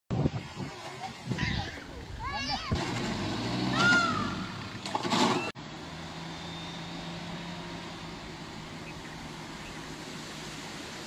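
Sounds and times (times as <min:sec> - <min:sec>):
people shouting: 0:03.7 - 0:04.6
vehicle engine idling: 0:05.6 - 0:11.0.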